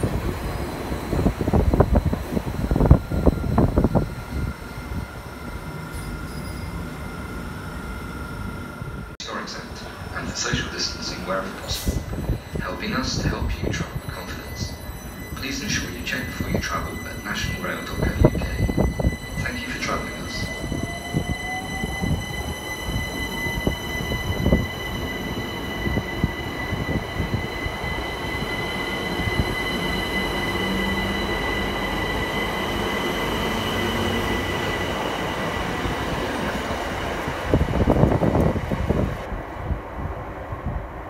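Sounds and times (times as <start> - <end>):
wheels rumbling on rails: 16.3 - 41.0.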